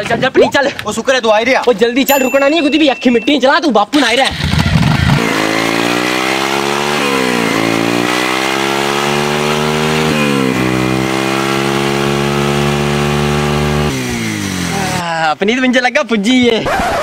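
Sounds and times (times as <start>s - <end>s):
motorcycle engine accelerating: 4.3s - 15.0s.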